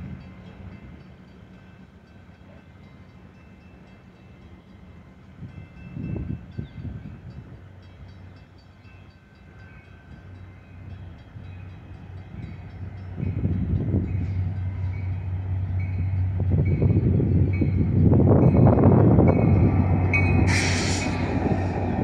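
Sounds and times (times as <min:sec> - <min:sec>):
crossing bell dinging: 0:00.0 - 0:22.0
diesel locomotive engine hum: 0:00.0 - 0:22.0
wind gusts on microphone: 0:16.0 - 0:22.0.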